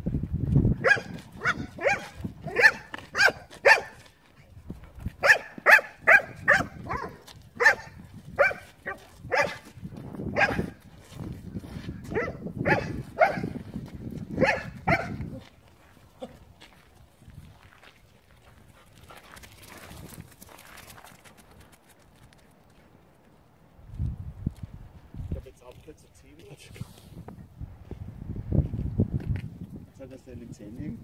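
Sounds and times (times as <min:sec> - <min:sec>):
dog barking: 0:00.8 - 0:04.0, 0:05.2 - 0:09.7, 0:10.3 - 0:10.8, 0:12.1 - 0:13.6, 0:14.4 - 0:15.4.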